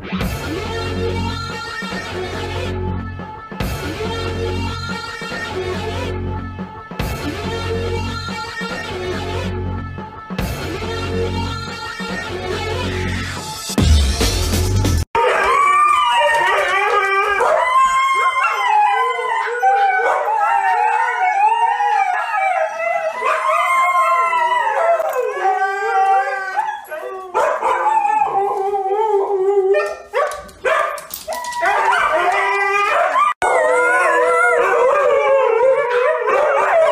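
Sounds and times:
huskies howling: 15.2s - 36.9s.

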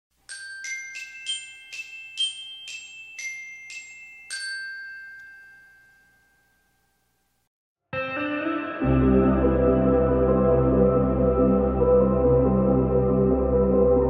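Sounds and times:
bell-like glockenspiel jingle: 0.2s - 7.3s.

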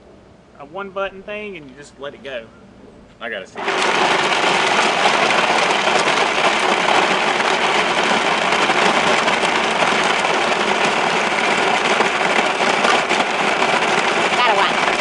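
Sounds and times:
blender motor grinding ice: 3.6s - 15.0s.

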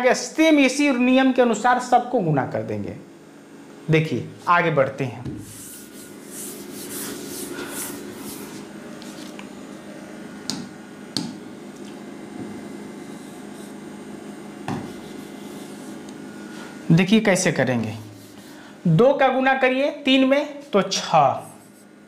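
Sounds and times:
steady low hum: 0.0s - 22.0s
hand rubbing on a screen: 5.4s - 9.5s, 12.6s - 14.0s, 14.7s - 16.8s, 17.8s - 18.7s, 21.4s - 22.0s.

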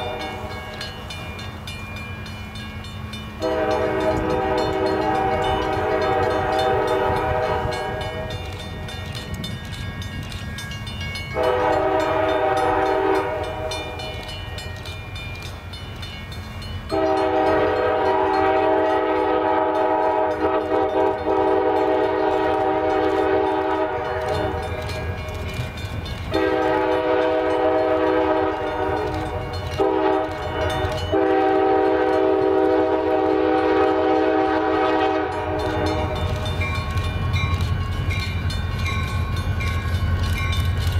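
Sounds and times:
locomotive air horn blasts: 0.0s - 0.7s, 3.4s - 8.4s, 11.4s - 14.0s, 16.9s - 24.6s, 26.3s - 36.2s.

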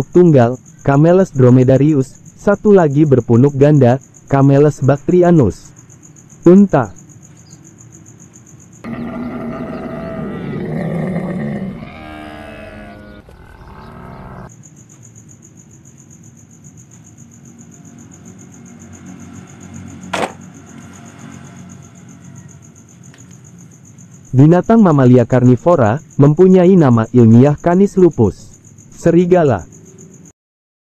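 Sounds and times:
crickets chirping: 0.0s - 30.4s
camel grunting bellow: 8.8s - 14.5s.

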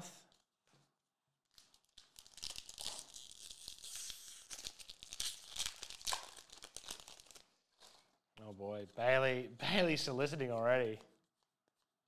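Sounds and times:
foil wrapper crinkling and tearing: 1.4s - 8.2s.

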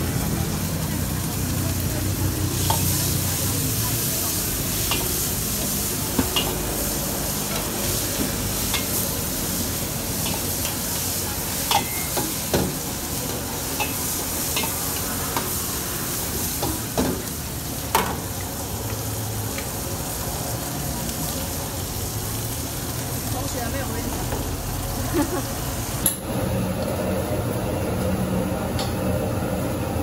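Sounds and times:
food sizzling in a wok: 0.0s - 30.0s
ladle scraping wok: 2.3s - 17.3s
ladle clinking against wok: 11.6s - 12.4s.

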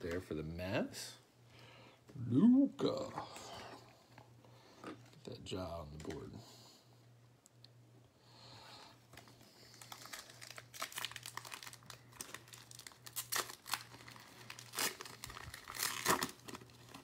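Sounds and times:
foil wrapper crinkling and tearing: 9.1s - 17.0s.

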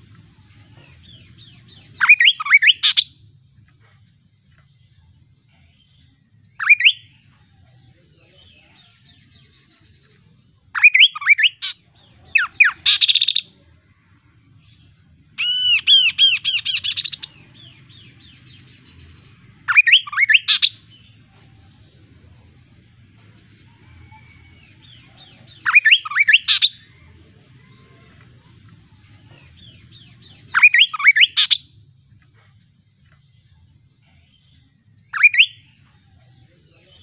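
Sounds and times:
bird singing whistled phrases: 2.0s - 3.1s, 6.5s - 7.3s, 10.8s - 11.8s, 15.4s - 17.3s, 19.7s - 20.8s, 24.9s - 26.9s, 30.0s - 31.7s, 35.0s - 35.8s.

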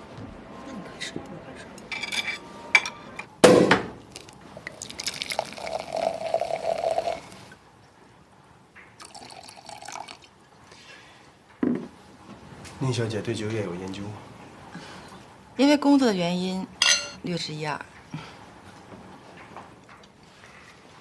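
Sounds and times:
sharp knock: 3.4s - 4.0s
wine pouring into glass: 4.2s - 7.5s, 9.0s - 10.3s.

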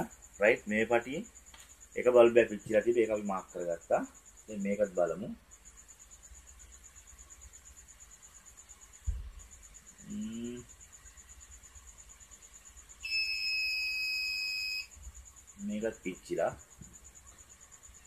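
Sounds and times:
thump: 9.0s - 9.4s
electronic buzzer tone: 13.0s - 14.9s.

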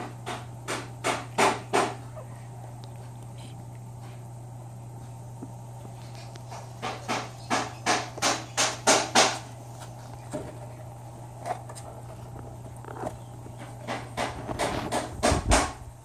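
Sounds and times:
sharp knocks: 0.0s - 2.0s, 6.8s - 9.5s, 13.8s - 15.8s
steady low hum: 0.0s - 16.0s.

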